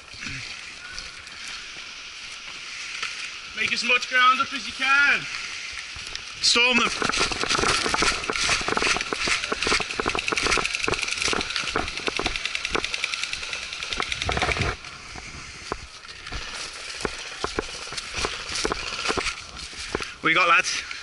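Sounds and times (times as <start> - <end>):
footsteps through dry leaves: 0.0 - 20.7
airsoft rifles firing bursts: 7.0 - 14.7.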